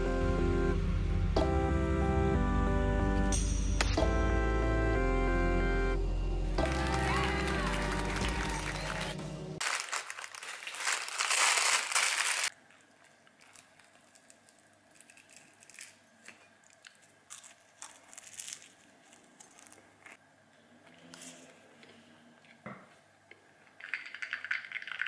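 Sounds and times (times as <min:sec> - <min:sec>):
croissant crust crackling: 0:09.6 - 0:20.2.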